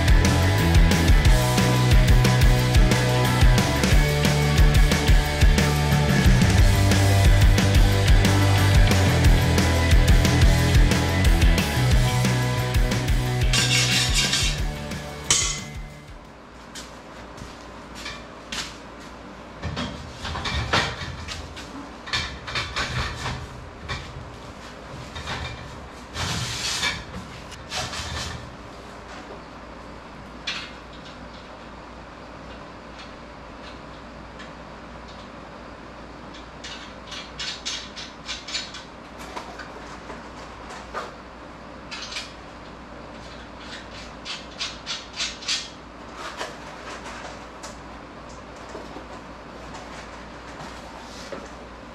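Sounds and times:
steady low hum: 0.0 - 51.9
metal scraping on metal: 13.4 - 14.7.

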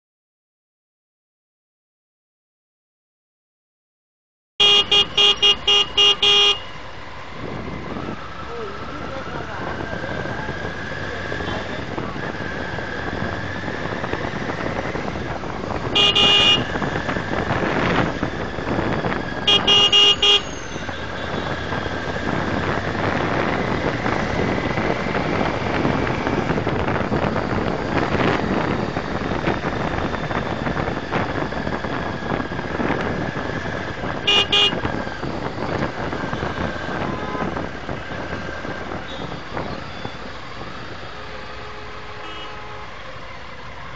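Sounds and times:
vehicle horn honking: 4.6 - 6.7, 15.9 - 16.8, 19.4 - 21.6, 34.2 - 34.9, 37.0 - 37.5, 41.6 - 43.0
motorcycle riding noise: 4.6 - 43.9.

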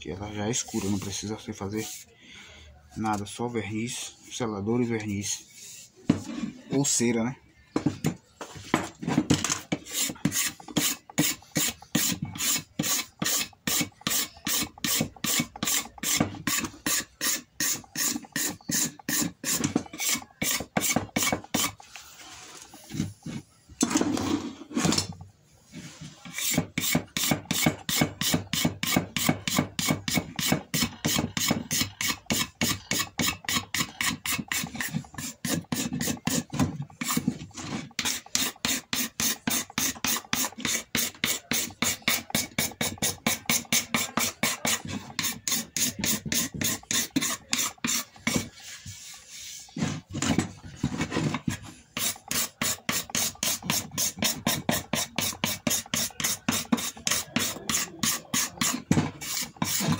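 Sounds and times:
metal scraper scraping wood: 0.4 - 2.1, 8.8 - 25.2, 25.8 - 59.9.

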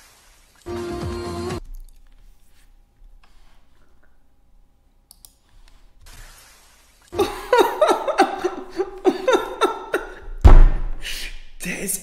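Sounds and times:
man laughing heartily: 7.2 - 10.3
loud low thump: 10.4 - 11.0.

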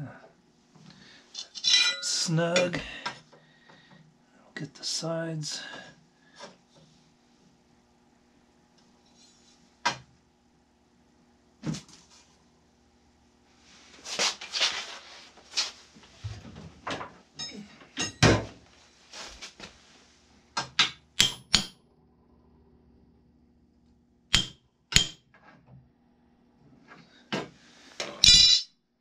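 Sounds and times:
hammer striking metal: 20.8 - 21.8, 24.3 - 25.2, 28.2 - 28.7.

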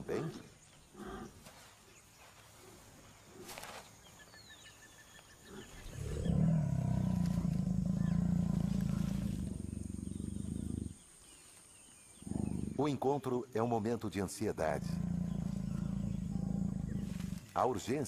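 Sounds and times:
jaguar growling: 5.4 - 11.0, 12.2 - 13.0, 14.5 - 17.6.

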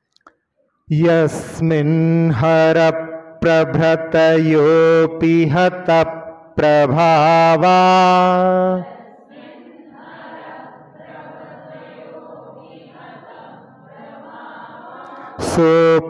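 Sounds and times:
man chanting: 0.9 - 8.9, 15.3 - 16.0
group of voices chanting in unison: 8.0 - 16.0.

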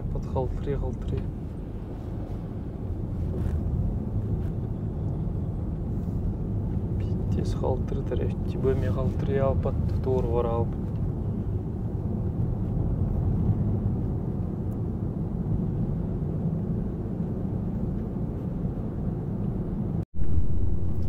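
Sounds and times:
car road and engine rumble: 0.0 - 21.0.

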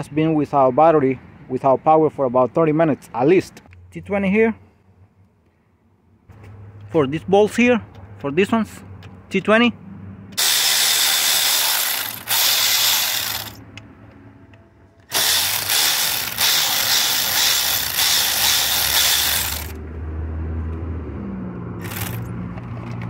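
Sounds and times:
electric ratchet spinning: 10.4 - 13.6, 15.1 - 19.8, 21.8 - 22.3.

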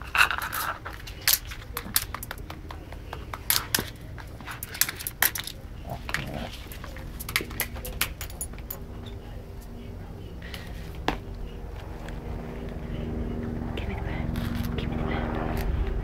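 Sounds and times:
dog gnawing a pig ear: 0.0 - 9.0.

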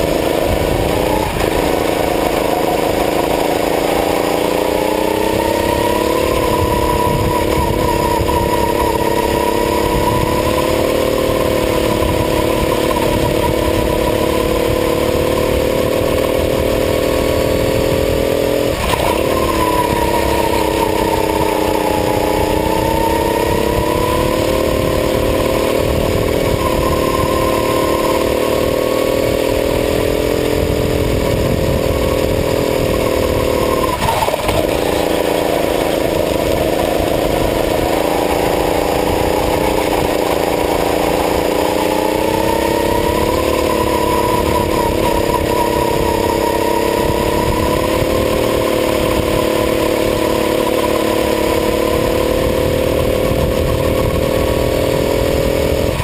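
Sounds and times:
go-kart engine racing: 0.0 - 56.0.

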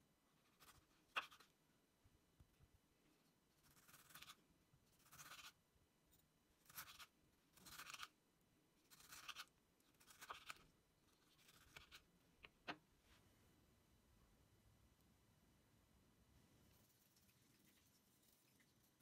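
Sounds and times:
knife slicing tomato: 0.4 - 1.6, 3.6 - 5.6, 6.6 - 8.2, 8.9 - 12.1.

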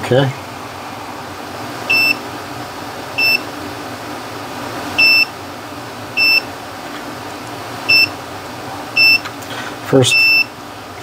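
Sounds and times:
multimeter beeps: 1.9 - 2.2, 3.2 - 3.4, 5.0 - 5.3, 6.2 - 6.5, 7.9 - 8.1, 9.0 - 9.2, 10.1 - 10.5.

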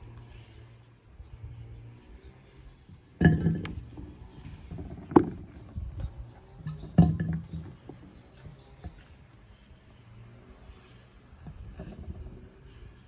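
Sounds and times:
plums knocking on glass jar: 3.2 - 3.8.

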